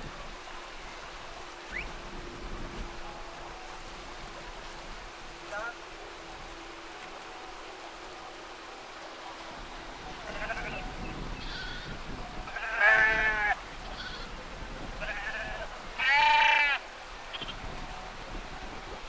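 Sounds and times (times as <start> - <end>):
sheep bleating: 10.2 - 14.4, 15.0 - 17.6.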